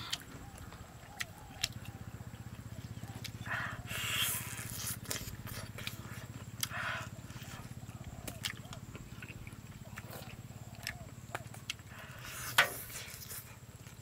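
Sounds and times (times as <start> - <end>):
mouth eating clicks and smacks: 0.0 - 14.0
steady low hum: 0.0 - 14.0
wet sucking noise: 3.9 - 6.4, 12.2 - 13.6.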